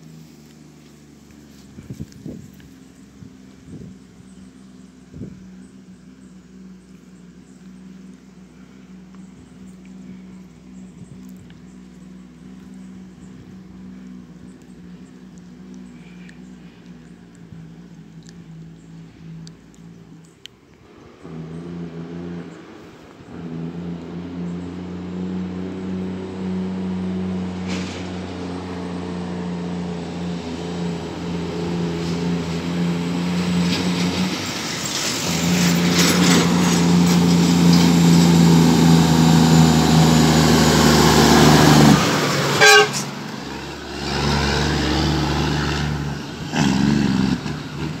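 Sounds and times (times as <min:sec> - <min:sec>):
diesel truck engine: 0:00.0 - 0:48.0
truck horn blast: 0:41.2 - 0:43.6.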